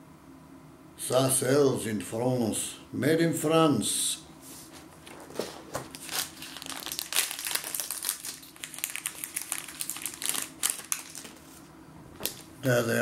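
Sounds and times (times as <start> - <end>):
packaging crinkling: 5.0 - 12.6.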